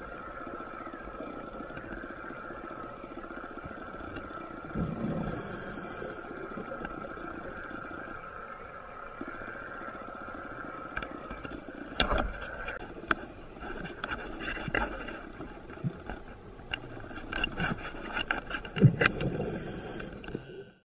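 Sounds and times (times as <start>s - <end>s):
exhaled bubbles rushing: 4.5s - 5.6s
diver breathing through regulator: 5.2s - 6.4s, 19.3s - 20.2s.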